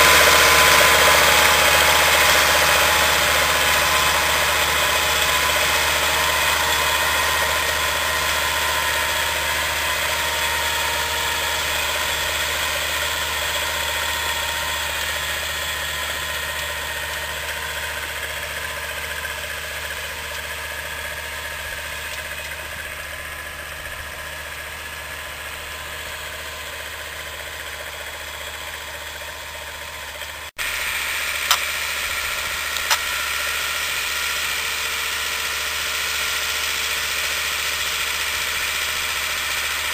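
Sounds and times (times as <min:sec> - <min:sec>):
tractor diesel engine under load: 0:00.0 - 0:39.9
sharp clicks: 0:31.4 - 0:31.7, 0:32.7 - 0:33.1.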